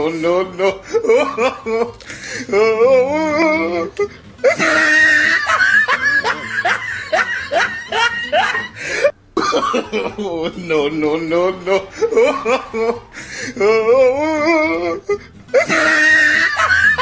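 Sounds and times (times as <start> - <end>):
wavering vocal sound: 0.0 - 5.0, 10.8 - 15.9
person laughing: 0.0 - 17.0.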